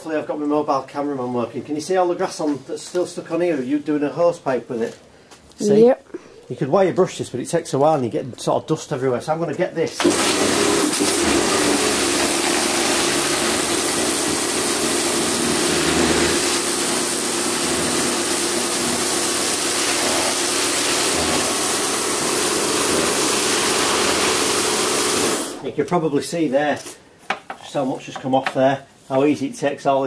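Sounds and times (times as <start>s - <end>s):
pump motor humming: 10.0s - 25.7s
water jet hissing: 10.0s - 25.8s.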